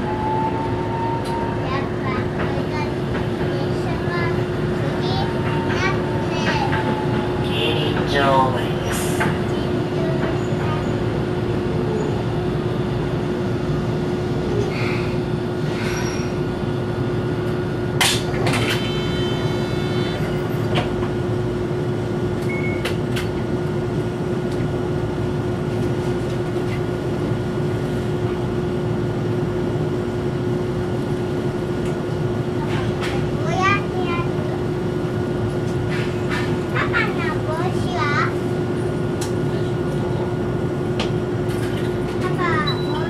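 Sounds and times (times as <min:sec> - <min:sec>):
tram doors clacking: 0:00.0 - 0:14.4, 0:17.4 - 0:19.6, 0:20.2 - 0:28.5, 0:31.1 - 0:43.0
tram equipment hum: 0:00.0 - 0:43.0.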